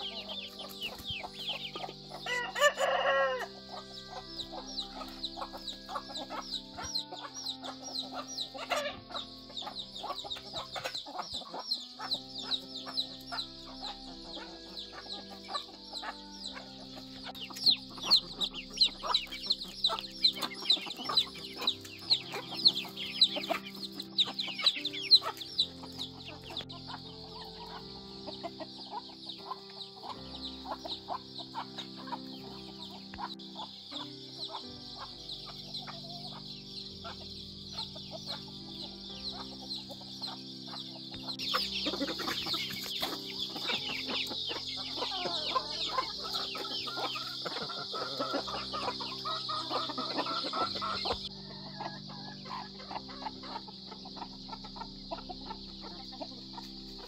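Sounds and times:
chickens clucking: 0.0 - 57.0
rooster crowing: 1.6 - 6.0, 41.6 - 53.1
rapid high chirps: 3.8 - 35.1.

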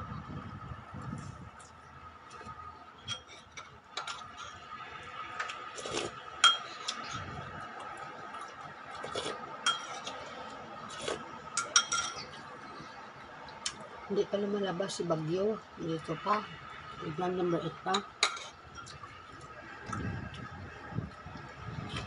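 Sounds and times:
faint steady whine: 0.0 - 22.0
cutlery and dishes clinking: 5.8 - 7.2, 9.2 - 10.2, 10.9 - 12.4, 18.2 - 19.0.

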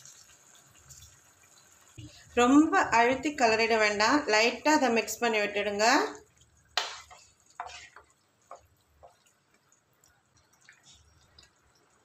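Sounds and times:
spatula stirring rice in liquid: 6.3 - 12.0
wet slaps and splashes: 6.8 - 7.1.

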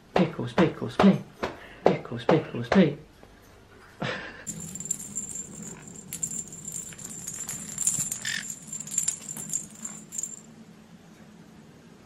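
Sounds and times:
bell in toy ball jingling: 4.5 - 10.5.

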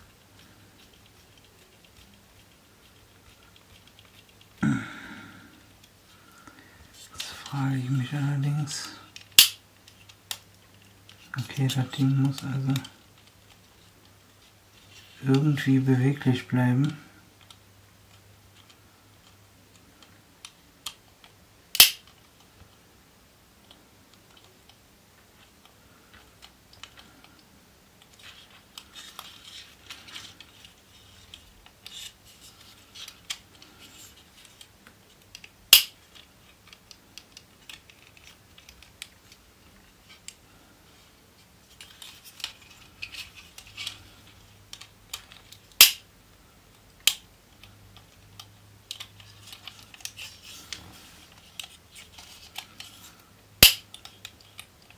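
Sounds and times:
sharp loud clicks: 45.8 - 46.0, 53.6 - 53.9.

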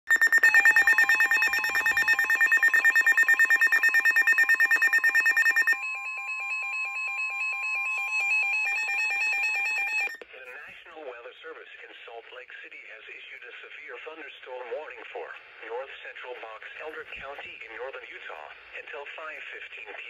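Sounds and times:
rapid pulsing electronic beep: 0.1 - 5.8
warbling beep: 0.1 - 10.2.

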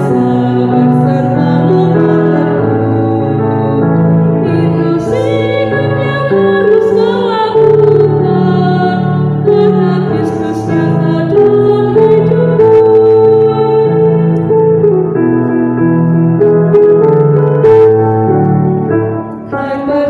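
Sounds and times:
woman singing a hymn: 0.0 - 14.4, 19.5 - 20.0
electronic keyboard chords: 0.0 - 20.0.

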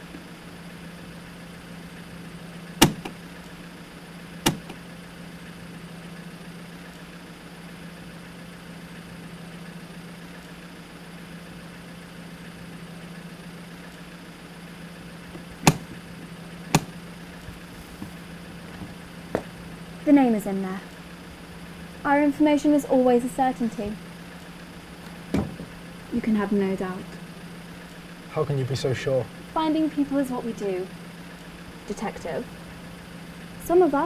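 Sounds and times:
steady low hum: 0.0 - 34.0
briefcase latches snapping: 4.5 - 4.8, 15.6 - 16.0.

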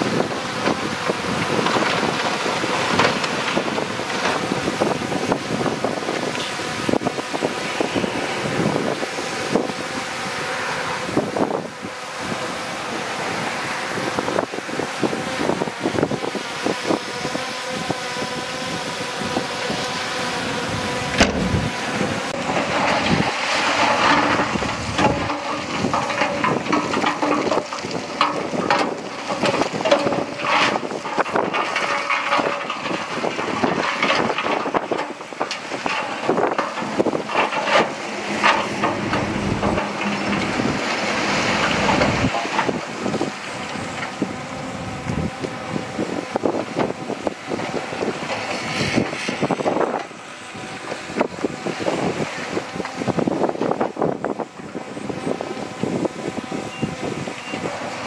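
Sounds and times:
bulldozer diesel engine: 20.6 - 45.1
steel tracks clanking: 21.1 - 44.2.

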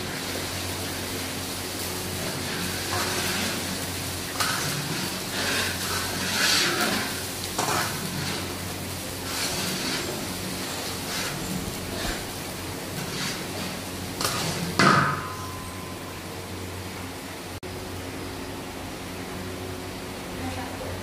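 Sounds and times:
curry sizzling in a wok: 0.0 - 17.6
metal spatula scraping wok: 2.2 - 16.0.

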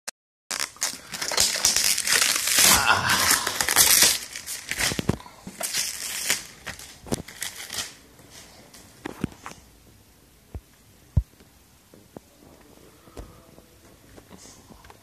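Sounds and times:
plastic bag crinkling: 0.5 - 8.5.

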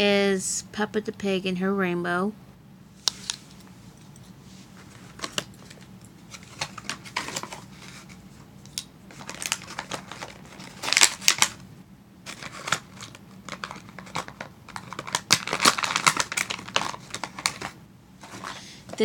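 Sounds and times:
plastic packaging crinkling: 4.8 - 8.2, 9.1 - 11.6, 12.2 - 19.0.

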